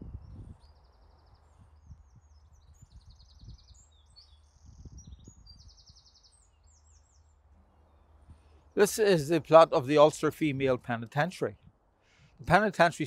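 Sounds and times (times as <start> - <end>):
small birds chirping: 0.0 - 13.0.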